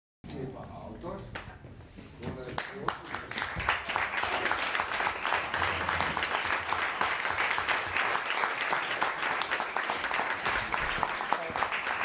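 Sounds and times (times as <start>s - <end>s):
audience applause: 2.6s - 12.0s.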